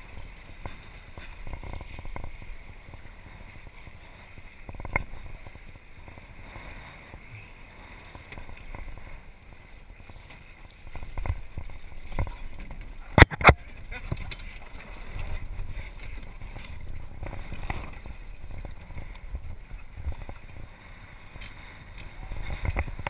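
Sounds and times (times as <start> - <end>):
water sloshing against hull: 0.0 - 23.0
wind buffeting microphone: 0.0 - 23.0.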